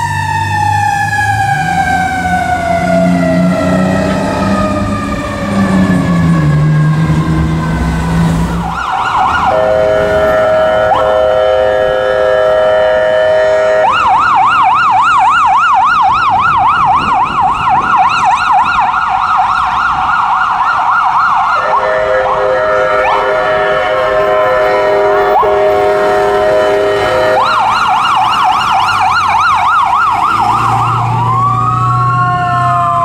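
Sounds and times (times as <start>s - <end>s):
electronic siren yelp: 0.0s - 33.0s
ambulance horn blast: 1.4s - 14.2s, 21.6s - 28.5s.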